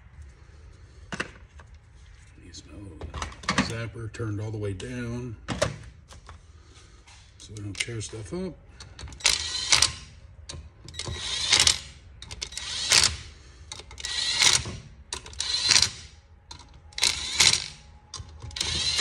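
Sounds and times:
cordless driver spinning bolts: 0:08.9 - 0:10.1, 0:10.9 - 0:19.0
rapid ratcheting clicks: 0:08.9 - 0:10.1, 0:10.9 - 0:19.0.

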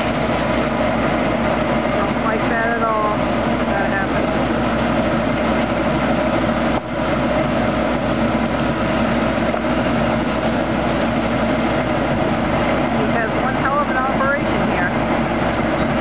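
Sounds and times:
circular sawmill drone: 0:00.0 - 0:16.0
tractor engine running: 0:00.0 - 0:16.0.

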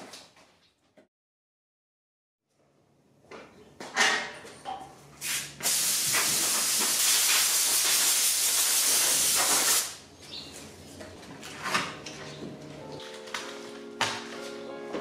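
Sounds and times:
compressed air hissing: 0:05.2 - 0:10.0.

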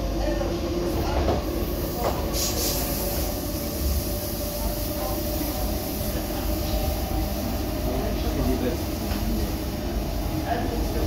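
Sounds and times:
train interior rumble: 0:00.0 - 0:11.0
short high hiss: 0:02.3 - 0:04.1.

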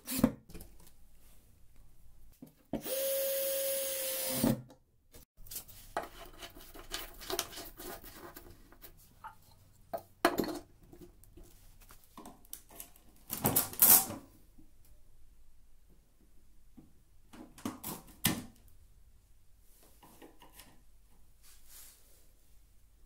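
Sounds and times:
cordless drill driving screw: 0:02.8 - 0:04.6.

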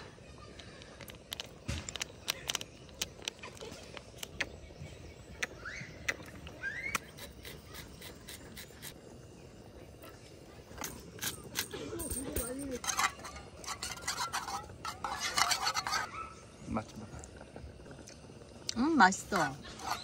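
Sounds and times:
utensils and dishes clicking: 0:00.6 - 0:04.5, 0:10.8 - 0:16.1.

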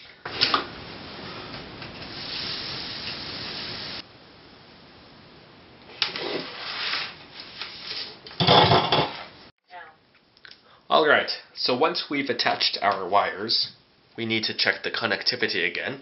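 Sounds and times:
soldering iron hiss: 0:00.3 - 0:04.1.

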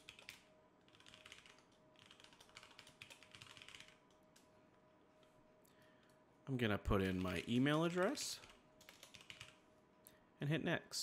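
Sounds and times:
soft keyboard typing: 0:00.0 - 0:04.5, 0:07.0 - 0:09.6.

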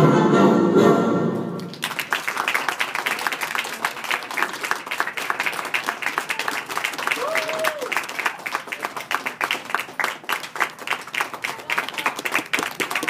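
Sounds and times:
music: 0:00.0 - 0:01.6
audience applause: 0:01.6 - 0:13.0.

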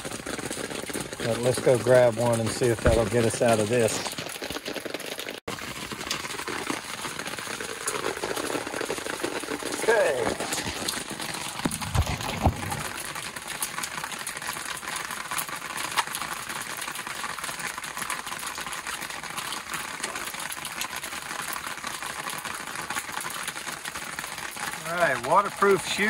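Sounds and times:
rain on an umbrella: 0:00.0 - 0:26.0
low thumps: 0:11.7 - 0:13.0.

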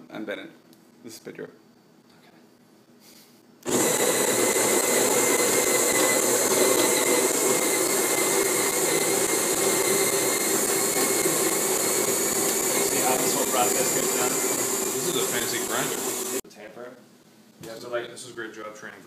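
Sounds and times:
coffee grinder motor whirring: 0:03.6 - 0:16.4.

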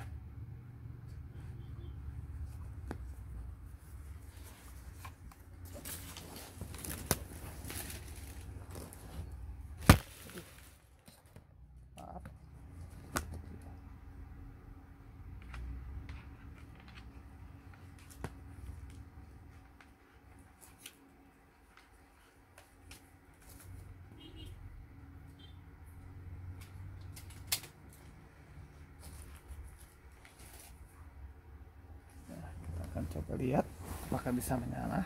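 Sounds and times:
rustling and rubbing: 0:02.3 - 0:11.0, 0:32.0 - 0:35.0.

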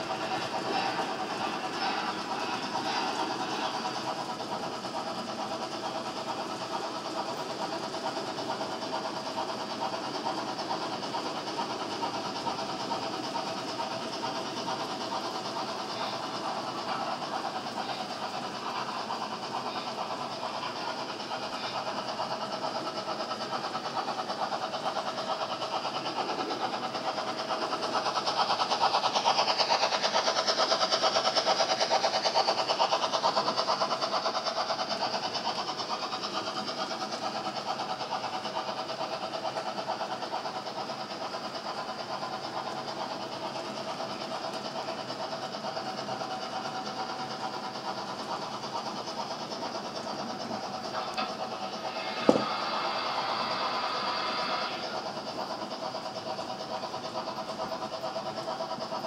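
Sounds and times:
model train motors whirring: 0:00.0 - 0:59.0
model train wheels rattling: 0:00.0 - 0:59.0.

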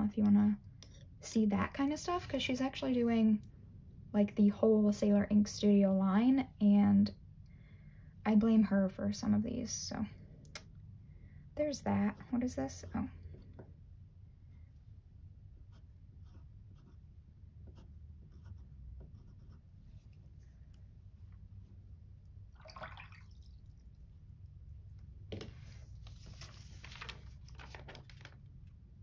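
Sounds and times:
pen nib writing on paper: 0:17.6 - 0:19.7
paper sliding across table: 0:25.4 - 0:27.7.

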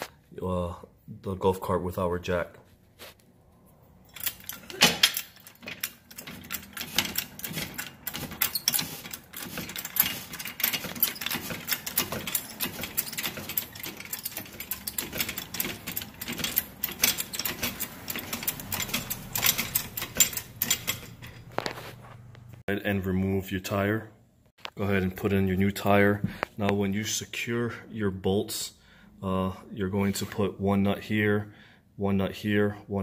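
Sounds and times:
floor jack handle clicking and rattling: 0:04.1 - 0:21.6.

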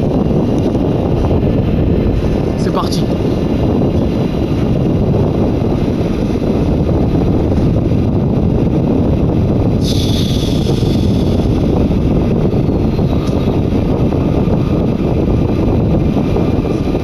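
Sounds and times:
train interior rumble: 0:00.0 - 0:17.0
high hiss: 0:09.8 - 0:11.7.

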